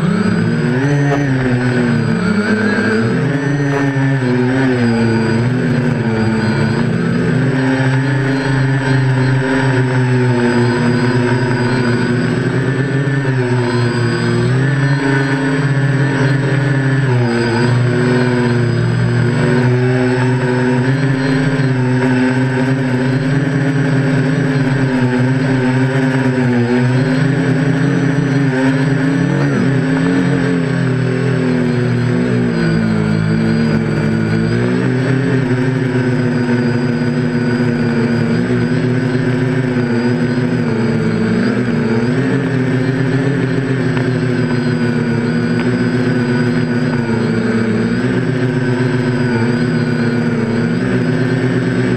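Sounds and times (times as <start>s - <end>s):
drone propellers buzzing: 0.0s - 51.9s.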